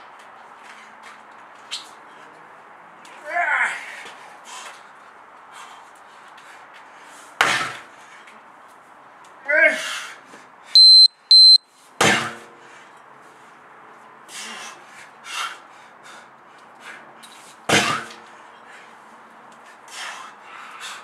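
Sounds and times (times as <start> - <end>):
sledgehammer slamming rubber tyre: 7.4 - 7.9, 12.0 - 12.5, 17.7 - 18.2
high electronic beeps: 10.8 - 11.6.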